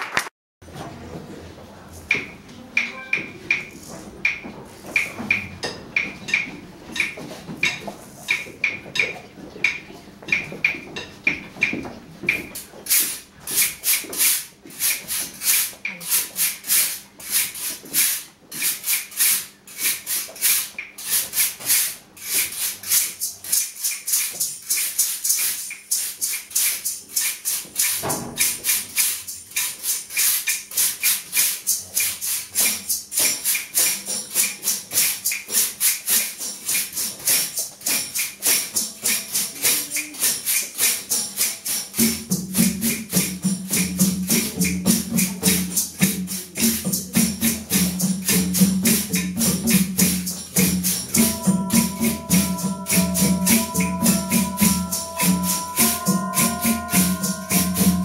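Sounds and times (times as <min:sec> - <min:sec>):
pitched mallet instruments: 0:02.2 - 0:04.4, 0:42.0 - 0:58.0
hand percussion fast pulse: 0:22.5 - 0:58.0.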